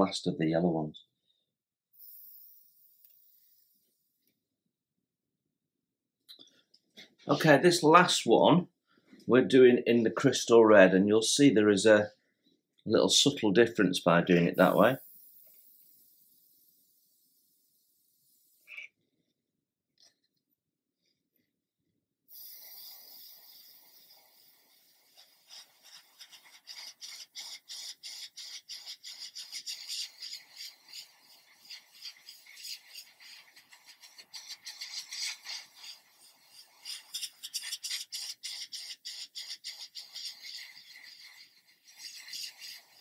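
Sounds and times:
airbrush spraying hiss: 2.0 - 3.8, 14.5 - 18.8, 22.3 - 43.0.

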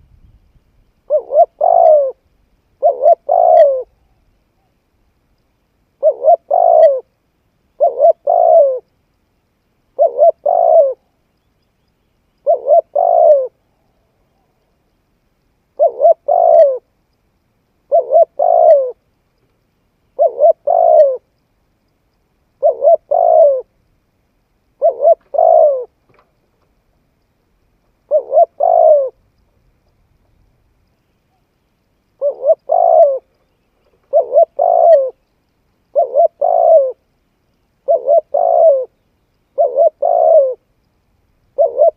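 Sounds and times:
dove cooing: 1.1 - 2.2, 2.8 - 4.8, 6.0 - 7.1, 7.7 - 8.9, 9.9 - 11.1, 12.4 - 14.6, 15.7 - 16.9, 17.9 - 19.0, 20.1 - 21.3, 22.6 - 23.7, 24.8 - 26.0, 28.0 - 29.2, 32.2 - 35.2, 35.9 - 37.1, 37.8 - 40.7, 41.5 - 41.9.

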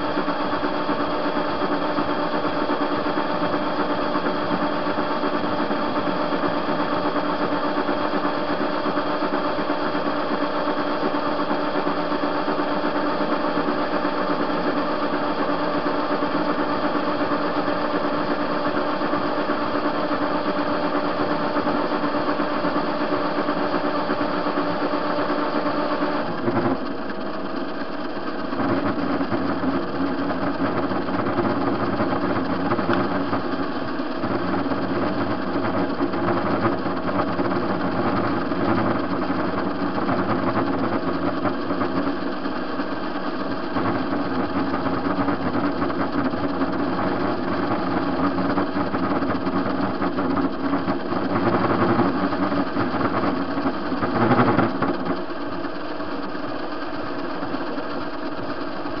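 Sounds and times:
metal lathe running: 0.0 - 59.0.

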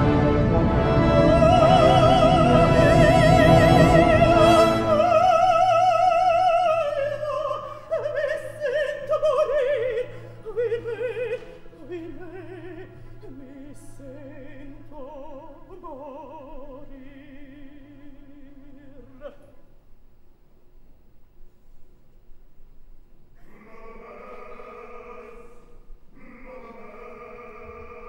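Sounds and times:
woman singing opera: 0.8 - 19.7.

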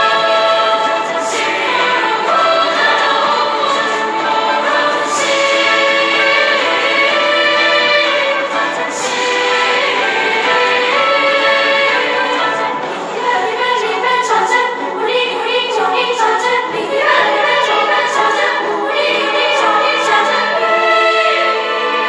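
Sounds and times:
boys' choir singing: 0.0 - 22.0
orchestral accompaniment: 0.0 - 22.0.

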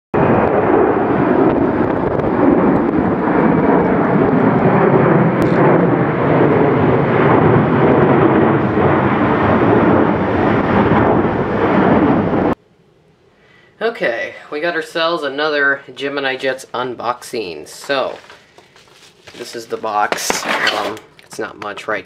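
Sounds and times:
jet airliner roaring overhead: 0.2 - 12.6.

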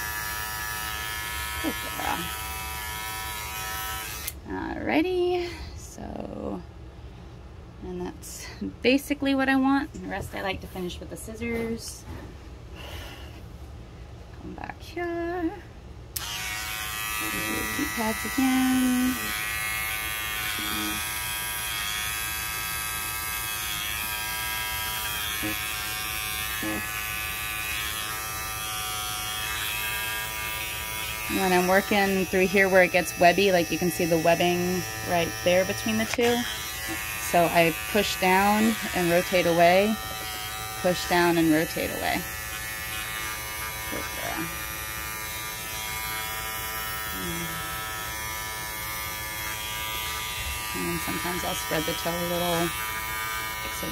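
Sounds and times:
pet clipper buzzing: 0.0 - 4.4, 16.1 - 53.9.

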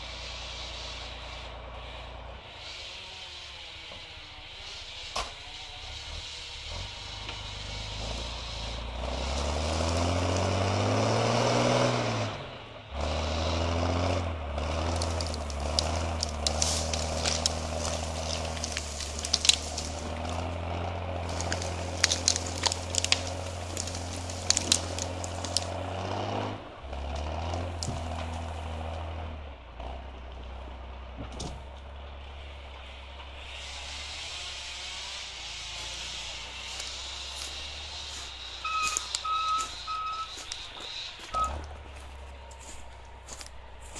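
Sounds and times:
diesel engine revving: 0.0 - 43.9
wood cracking and snapping: 9.0 - 11.3, 14.5 - 29.0.

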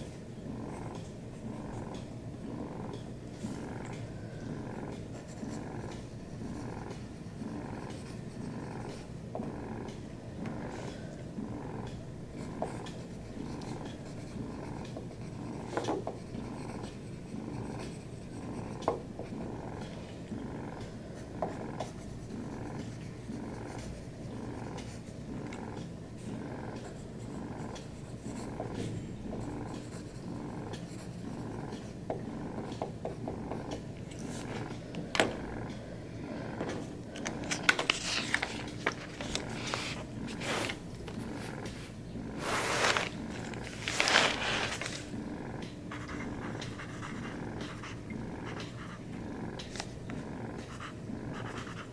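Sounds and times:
pencil scratching on paper: 0.0 - 2.1, 2.7 - 9.9, 11.9 - 34.8, 36.6 - 45.1, 45.9 - 49.9, 50.6 - 51.9
cat purring: 0.0 - 51.9
paper pages rustling: 37.1 - 45.1.

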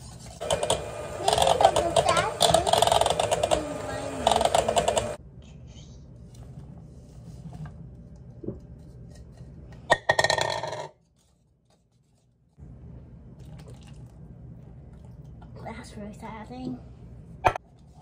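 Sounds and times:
spoon scraping mixing bowl: 0.0 - 5.2
low room hum: 4.7 - 9.9, 11.0 - 18.0.

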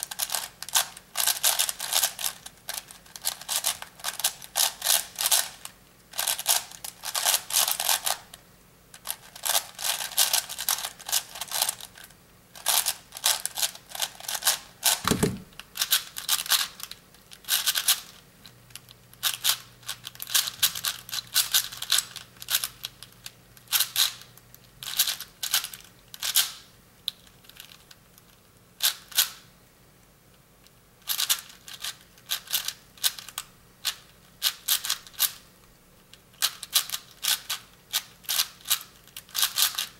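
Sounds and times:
speedcube turning rapid clicking: 0.2 - 5.5, 17.4 - 18.1, 19.2 - 23.0, 31.1 - 35.4, 36.4 - 39.9
dull thump: 15.0 - 15.6.

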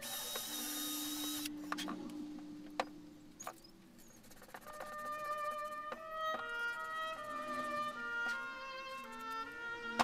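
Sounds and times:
cordless drill running: 0.0 - 1.5.

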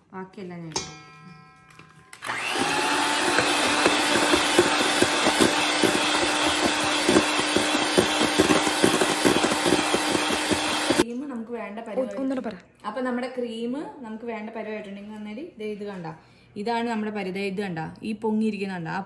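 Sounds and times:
beaters knocking metal bowl: 0.8 - 11.0
electric mixer humming: 2.1 - 11.0.

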